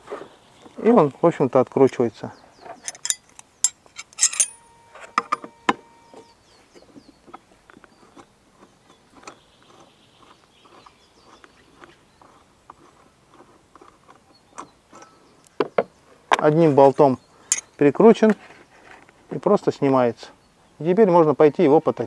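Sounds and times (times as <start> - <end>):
wrench clinking on metal bolt: 2.8 - 5.8, 17.5 - 17.7
short metallic ring: 2.9 - 6.4.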